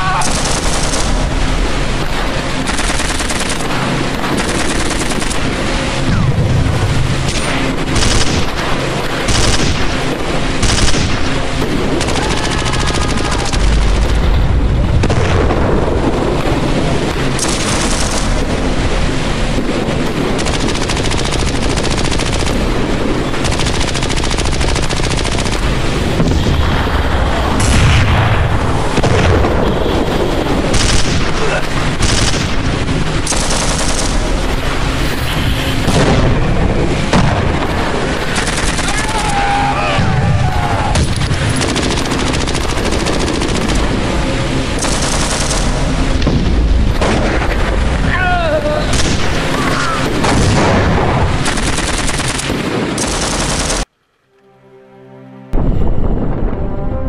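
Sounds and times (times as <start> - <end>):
machine-gun and rifle fire: 0.0 - 1.4, 2.6 - 5.6, 7.2 - 14.3, 17.3 - 18.5, 20.3 - 25.9, 28.9 - 34.6, 37.1 - 39.3, 40.9 - 46.3, 48.9 - 53.9
deep rumble: 0.0 - 53.8, 55.5 - 57.0.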